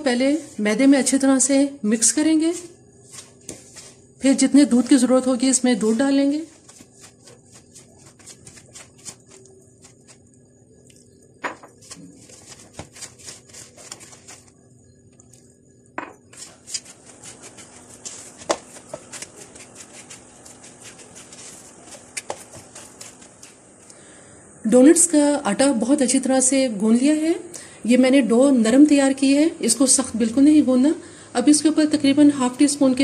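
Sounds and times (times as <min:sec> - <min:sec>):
hand kneading dough: 0:01.9 - 0:10.4, 0:11.6 - 0:14.6, 0:16.2 - 0:23.9.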